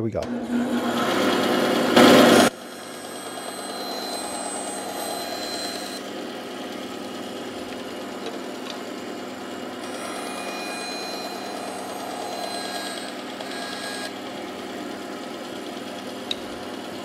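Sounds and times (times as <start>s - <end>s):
bandsaw running: 0.2s - 7.2s, 9.7s - 15.1s.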